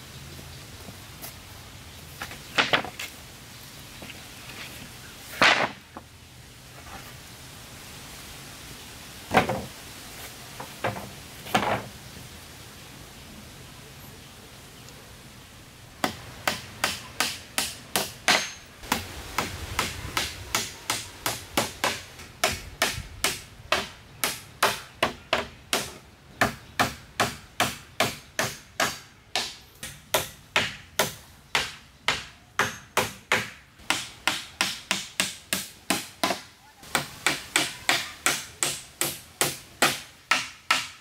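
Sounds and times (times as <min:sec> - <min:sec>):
hand tool striking wood: 0:16.0 - 0:41.0.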